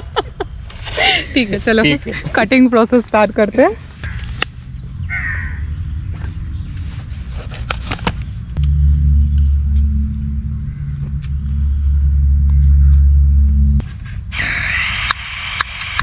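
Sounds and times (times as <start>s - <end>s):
crow cawing: 4.0s - 4.4s, 5.1s - 5.7s
steady low rumble: 8.3s - 14.3s.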